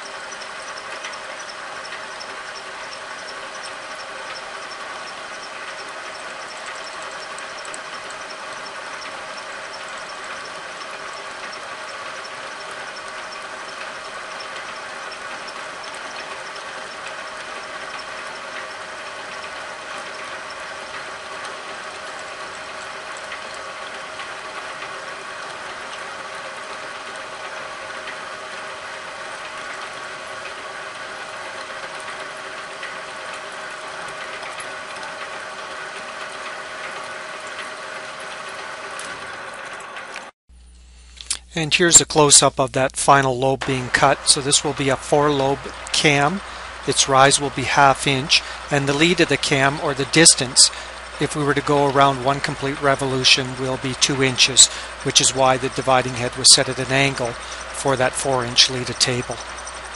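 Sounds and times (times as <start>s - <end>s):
milling machine cutting metal: 0.0s - 40.3s, 43.6s - 59.9s.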